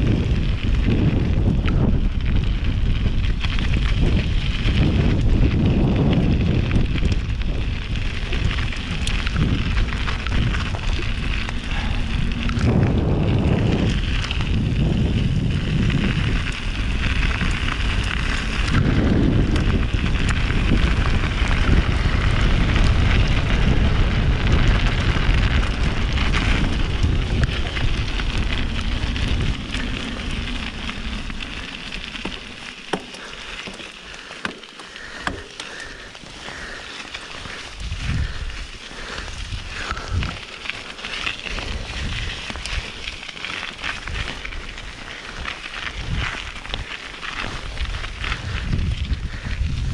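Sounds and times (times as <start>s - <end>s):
bike tyres rolling on trail: 0.0s - 49.9s
wind rushing over microphone: 0.0s - 49.9s
bike knocks: 32.1s - 33.8s.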